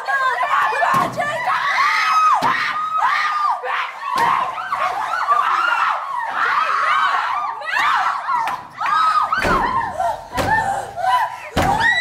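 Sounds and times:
women screaming: 0:00.0 - 0:12.0.

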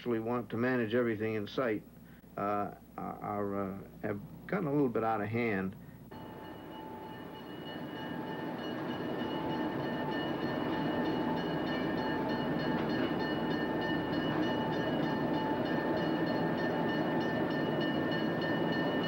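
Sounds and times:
diesel locomotive running: 0:06.1 - 0:19.0.

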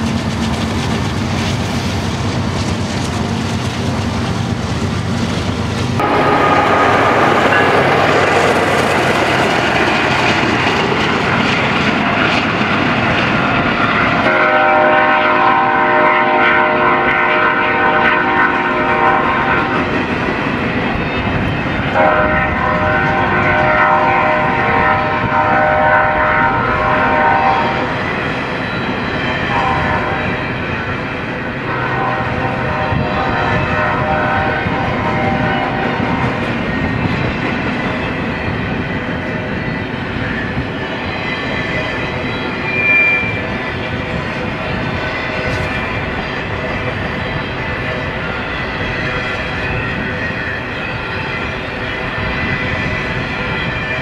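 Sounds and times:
train wheels rumbling and clacking: 0:00.0 - 0:54.0
locomotive air horn chord: 0:06.0 - 0:08.2, 0:14.2 - 0:19.9, 0:22.0 - 0:27.9, 0:29.4 - 0:30.4, 0:31.6 - 0:36.1.

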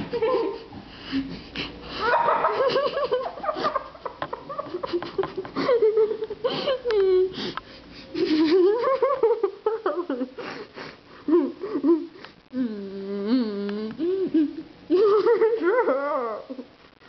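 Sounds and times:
girl's wheezing laughter: 0:00.0 - 0:04.0, 0:04.6 - 0:12.2
steady held hum: 0:00.0 - 0:17.0.

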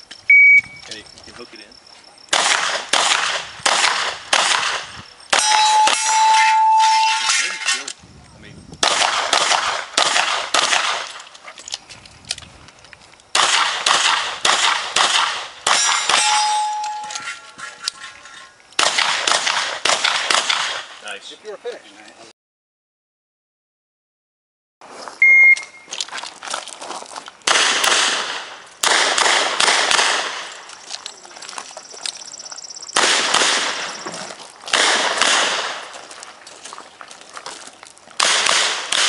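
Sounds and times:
steel targets ringing: 0:05.3 - 0:07.9, 0:15.7 - 0:18.5.

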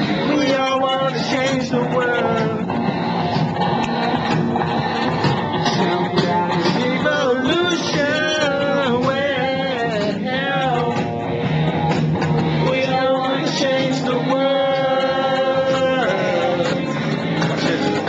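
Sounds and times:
person singing: 0:00.0 - 0:02.8, 0:05.5 - 0:11.1, 0:12.5 - 0:18.0
guitar accompaniment: 0:00.0 - 0:18.0.

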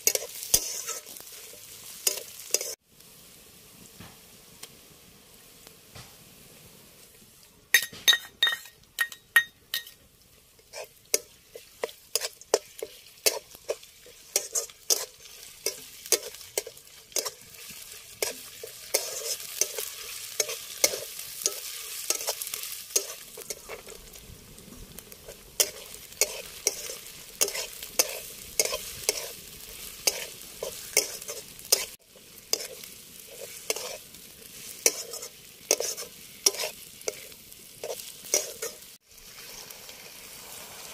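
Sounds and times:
metal spatula scraping pan: 0:00.0 - 0:02.8, 0:10.6 - 0:24.0, 0:25.2 - 0:39.8
food sizzling in pan: 0:00.0 - 0:40.9.

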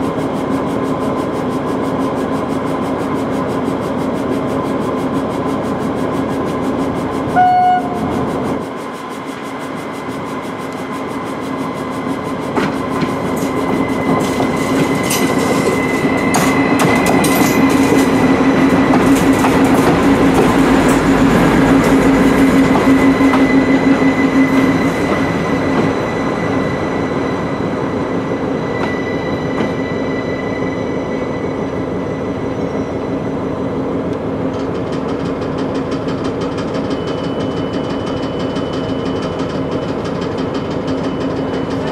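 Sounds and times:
train engine hum: 0:00.0 - 0:41.9
high-pitched whine: 0:07.3 - 0:33.7.

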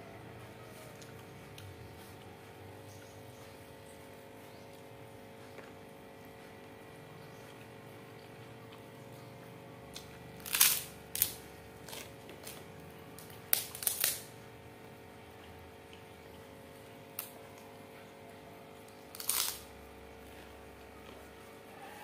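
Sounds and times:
faint steady hum: 0:00.0 - 0:22.0
food wrapper rustling: 0:13.5 - 0:14.3, 0:19.1 - 0:19.7.

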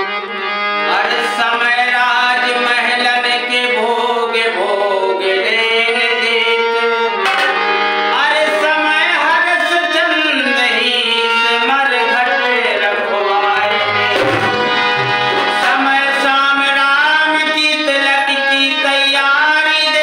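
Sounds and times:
man singing devotional song: 0:00.0 - 0:20.0
musical accompaniment: 0:13.1 - 0:17.6.

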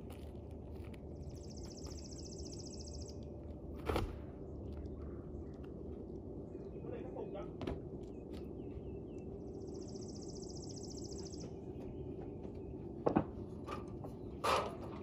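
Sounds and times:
low background noise: 0:00.0 - 0:15.0
bird chirps: 0:01.2 - 0:03.3, 0:08.0 - 0:12.9.

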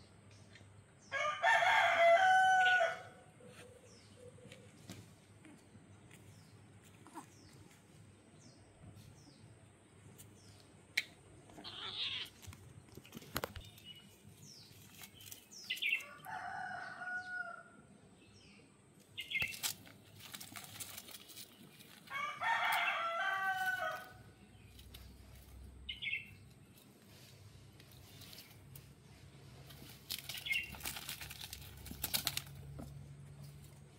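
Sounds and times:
rooster crowing: 0:01.1 - 0:03.3, 0:16.0 - 0:17.9, 0:22.1 - 0:24.2.

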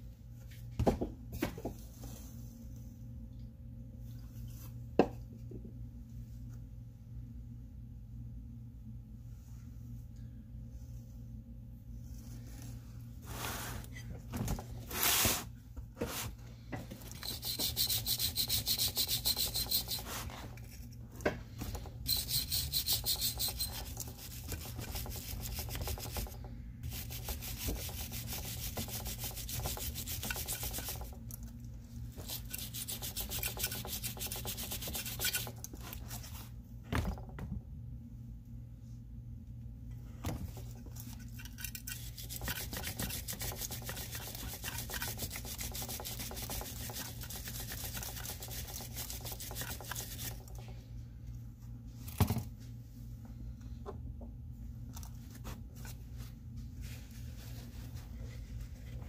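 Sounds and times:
steady low hum: 0:00.0 - 0:59.0
scrubbing strokes on metal housing: 0:17.0 - 0:20.7, 0:22.0 - 0:31.2, 0:32.2 - 0:35.6, 0:41.2 - 0:50.7.

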